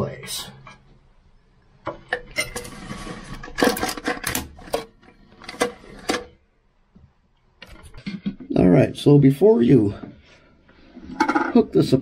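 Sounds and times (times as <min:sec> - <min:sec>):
plastic scraping slide: 0:02.6 - 0:06.3.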